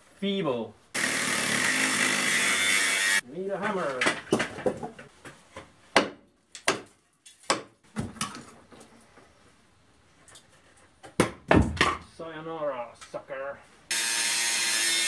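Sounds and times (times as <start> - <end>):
hammer striking wooden beams: 5.6 - 7.8, 11.0 - 12.0.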